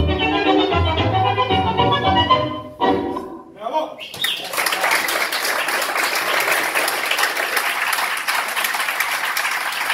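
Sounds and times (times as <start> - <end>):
audience applauding: 4.2 - 9.9.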